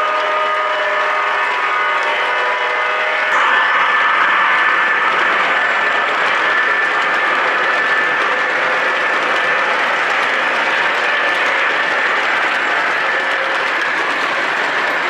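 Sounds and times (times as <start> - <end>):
model train wheels rattling: 3.3 - 15.0.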